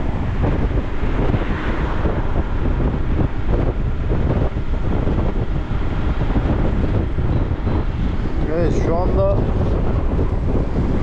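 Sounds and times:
moving vehicle rumble: 0.0 - 11.0
wind buffeting microphone: 0.0 - 11.0.

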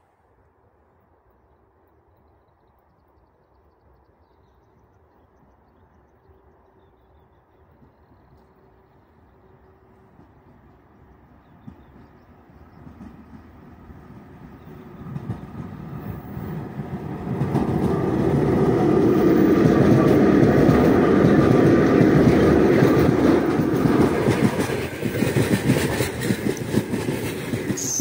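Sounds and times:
electric locomotive passing: 0.3 - 28.0
train wheels clickety-clack: 7.7 - 28.0.

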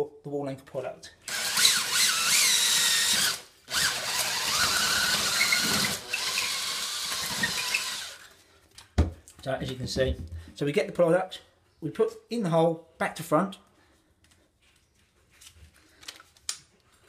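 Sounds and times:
cordless drill grinding whine: 1.3 - 8.3.

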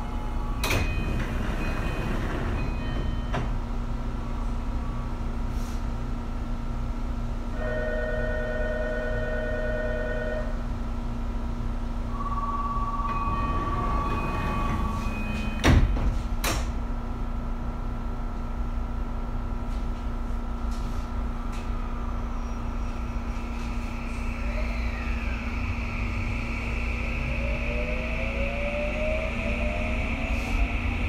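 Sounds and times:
sliding doors shutting: 0.6 - 3.6, 13.0 - 16.7.

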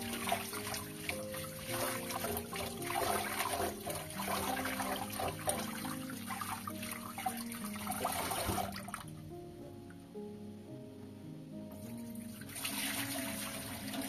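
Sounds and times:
hands rinsing rice grains: 0.0 - 9.1
tap water running into pot: 0.0 - 9.1
background music with held notes: 0.0 - 14.0.

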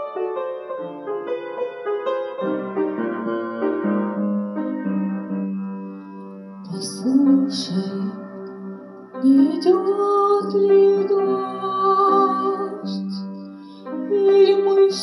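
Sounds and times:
piano playing slow melody: 0.0 - 15.0
woman singing: 6.7 - 8.3, 9.2 - 13.2, 14.1 - 15.0
woman breathing in: 13.5 - 14.0.

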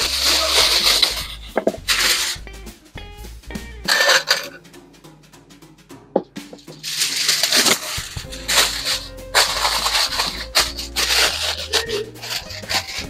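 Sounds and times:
background music: 0.0 - 13.0
aluminium foil crinkling: 6.9 - 13.0.

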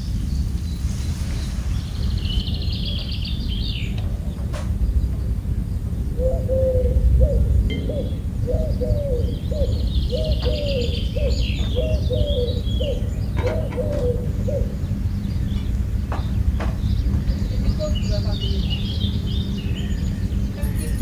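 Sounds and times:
steady low rumble: 0.0 - 10.2, 14.2 - 21.0
small birds chirping: 0.0 - 21.0
dove cooing: 6.1 - 14.9.

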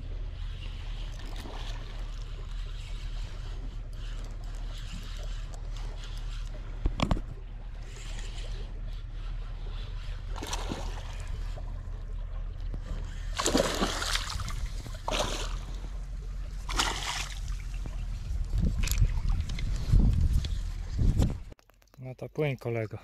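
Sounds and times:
steady low hum: 0.0 - 21.6
fish thrashing water splashing: 10.3 - 11.3, 13.3 - 15.6, 16.7 - 17.8.

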